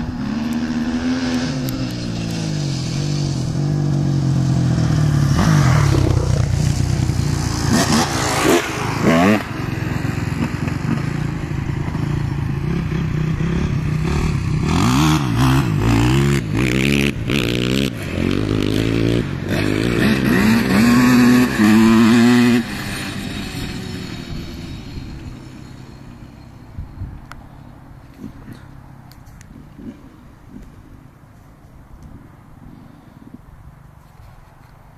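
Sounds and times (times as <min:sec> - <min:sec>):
motorbike engine revving: 0:00.0 - 0:26.2.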